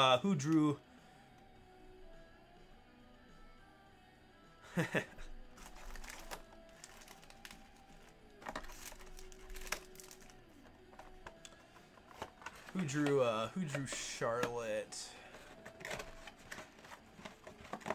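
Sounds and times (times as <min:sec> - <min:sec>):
faint background music: 0:00.0 - 0:17.9
plastic crinkling: 0:05.6 - 0:13.1.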